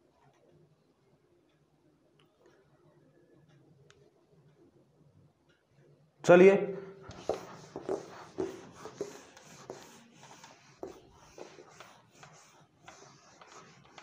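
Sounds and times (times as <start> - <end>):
duster scraping a whiteboard: 7.1 - 14.0.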